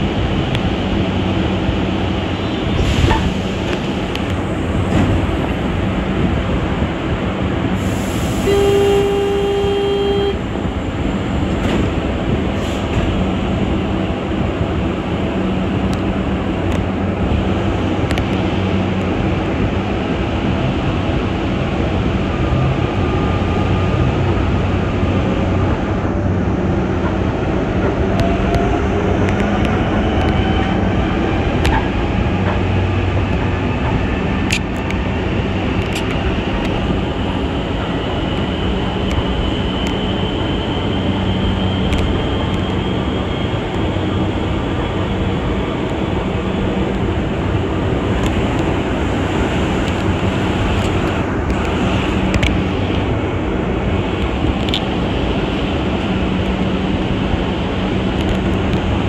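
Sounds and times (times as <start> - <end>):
metro train rumbling: 0.0 - 59.0.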